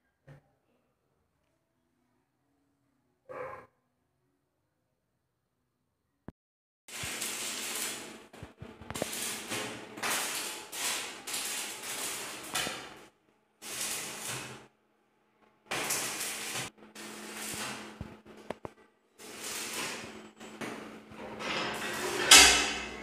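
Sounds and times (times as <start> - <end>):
hissing bursts of sparks: 6.9 - 14.7, 15.7 - 18.6, 19.2 - 23.0.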